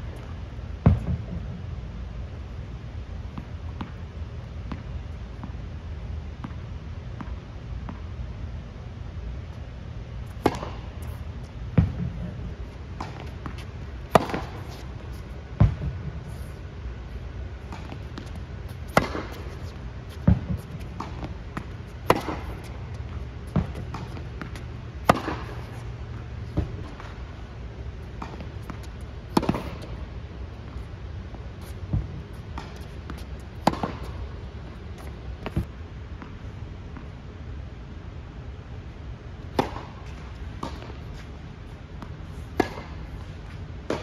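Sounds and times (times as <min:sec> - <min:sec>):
low steady hum: 0:00.0 - 0:44.0
tennis balls struck by rackets: 0:00.8 - 0:01.7, 0:10.3 - 0:16.3, 0:17.6 - 0:36.4, 0:39.4 - 0:41.2, 0:42.0 - 0:44.0.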